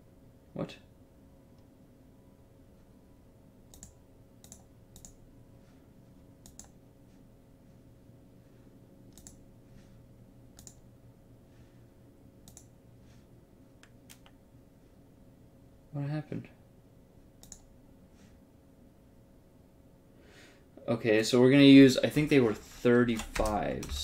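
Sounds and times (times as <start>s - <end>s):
faint room tone hum: 0.0s - 24.0s
computer mouse clicking: 3.7s - 5.2s, 6.4s - 6.8s, 9.1s - 9.4s, 10.5s - 10.8s, 12.4s - 12.7s, 13.8s - 14.4s, 17.4s - 17.7s, 23.0s - 24.0s.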